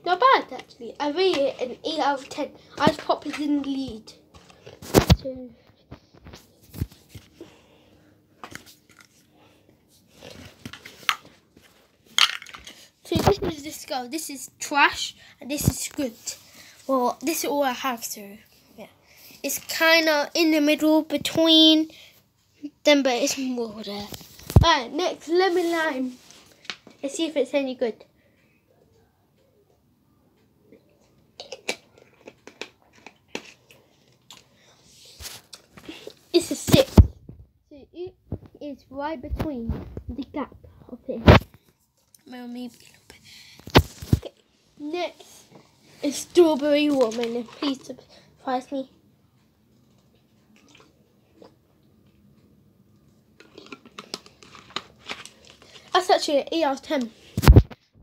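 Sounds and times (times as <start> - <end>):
plastic bottle clicks and crinkles: 12.2 - 12.8, 31.4 - 34.4, 53.4 - 56.0.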